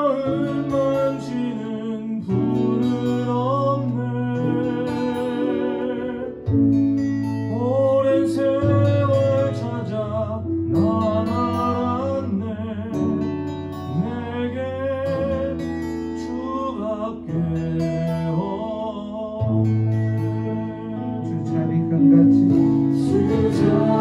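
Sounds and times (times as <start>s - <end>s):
acoustic guitar: 0.0s - 24.0s
voices singing slow melody: 0.0s - 24.0s
held low notes: 19.3s - 24.0s.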